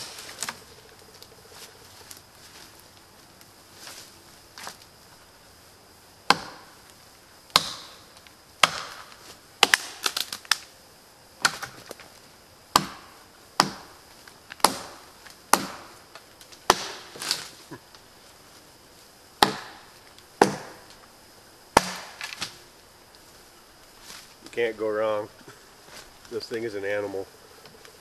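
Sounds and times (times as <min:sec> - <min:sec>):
knife chopping log: 0:06.3 - 0:06.6, 0:07.5 - 0:07.9, 0:08.6 - 0:10.0, 0:12.7 - 0:13.0, 0:13.6 - 0:13.9, 0:14.6 - 0:15.9, 0:16.7 - 0:17.2, 0:19.4 - 0:19.8, 0:20.4 - 0:20.8, 0:21.8 - 0:22.5.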